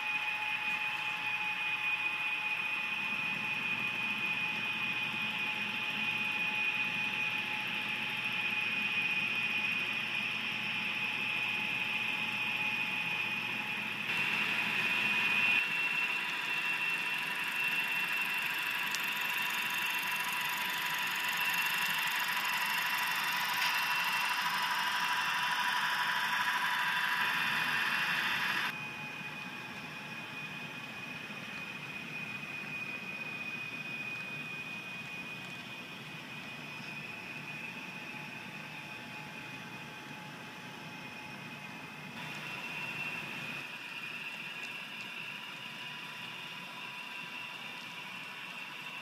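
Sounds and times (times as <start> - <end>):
model locomotive electric whine: 0.0 - 49.0
wheel and track hiss: 14.1 - 28.7.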